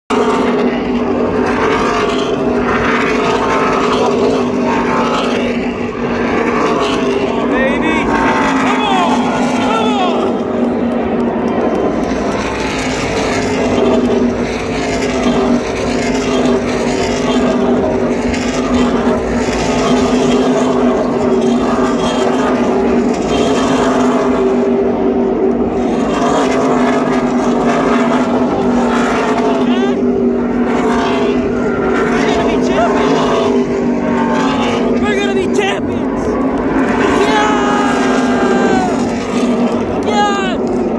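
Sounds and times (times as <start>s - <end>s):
race truck engines droning: 0.1s - 40.9s.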